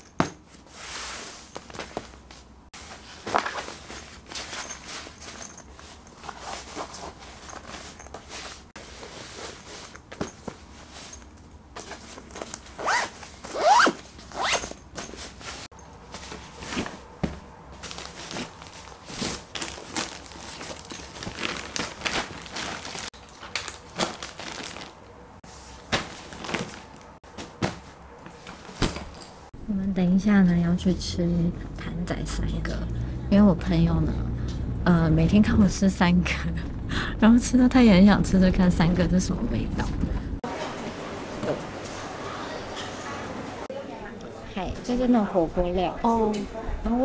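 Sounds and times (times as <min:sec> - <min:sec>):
fabric rustling: 0:00.4 - 0:29.5
zipper drawn: 0:12.8 - 0:14.8.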